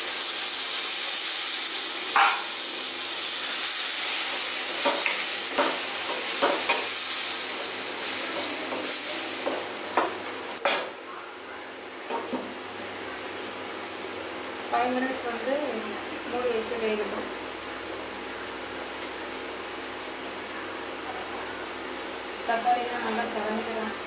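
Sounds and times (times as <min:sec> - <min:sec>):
masala sizzling in hot oil: 0:00.0 - 0:10.7.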